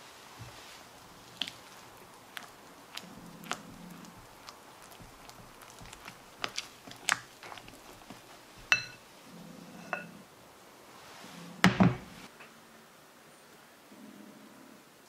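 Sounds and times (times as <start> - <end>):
spatula folding batter squelching: 0.0 - 10.2
spatula tapping and scraping glass bowl: 2.9 - 9.0, 9.8 - 10.1
object knocking on counter: 11.7 - 12.1.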